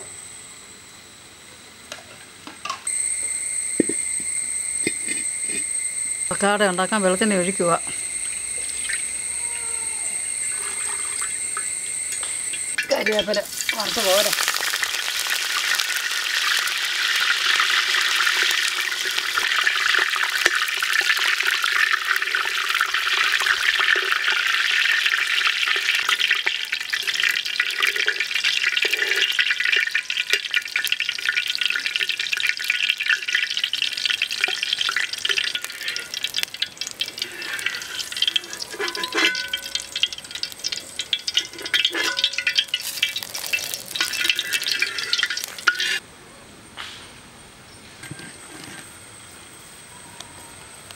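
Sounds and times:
steady high buzz: 0.0 - 25.2
curry leaves sizzling in hot oil: 2.9 - 9.4, 10.2 - 46.0.

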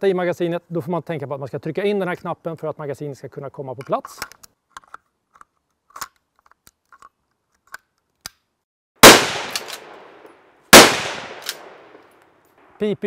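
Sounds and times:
rifle shot: 9.0 - 12.1.

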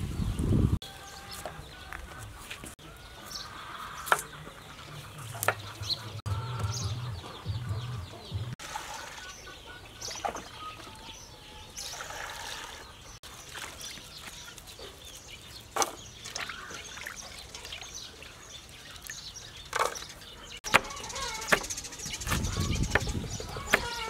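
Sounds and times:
water splashing and trickling: 8.5 - 21.6
water pouring into basin: 8.6 - 9.3, 11.9 - 12.8.

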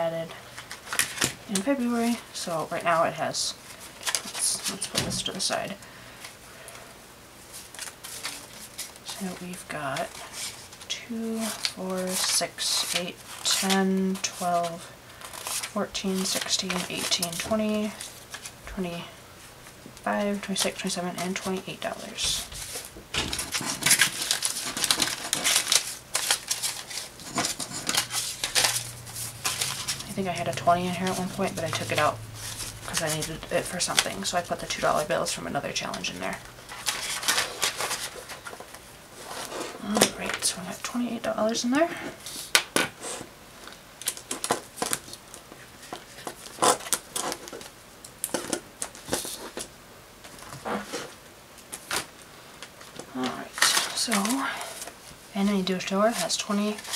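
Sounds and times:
paper banknotes rustling: 7.5 - 18.6, 20.1 - 42.6, 52.8 - 56.9
plastic pouches clicking and rustling: 22.6 - 35.1, 35.8 - 38.8, 43.6 - 55.0.

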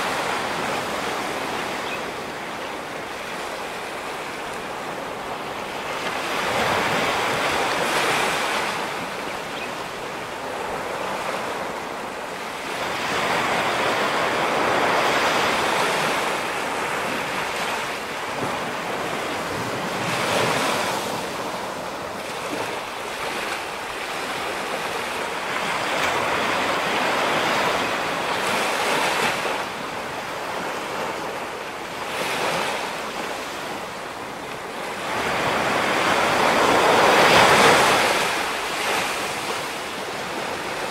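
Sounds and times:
waves breaking: 0.0 - 40.9.

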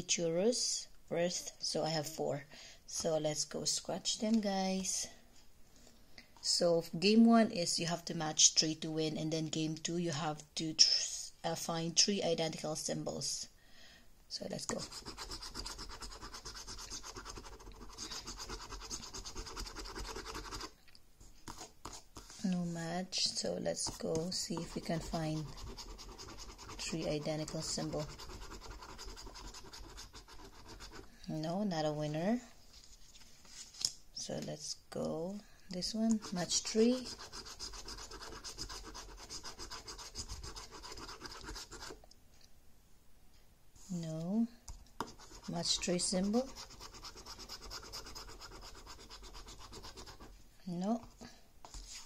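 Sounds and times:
coin scratching scratchcard: 14.8 - 20.7, 24.5 - 31.0, 36.2 - 42.0, 45.1 - 50.3.

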